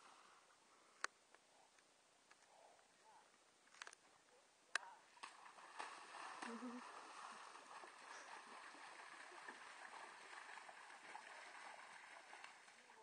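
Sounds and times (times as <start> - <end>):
water sloshing and splashing: 5.2 - 13.0.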